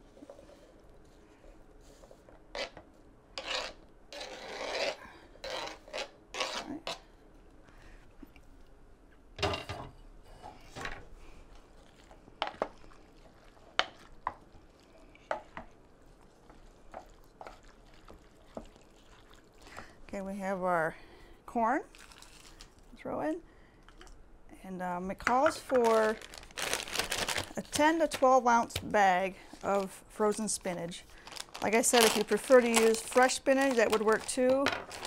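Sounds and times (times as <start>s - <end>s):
knife scraping cutting board: 2.5s - 2.8s, 3.4s - 7.0s.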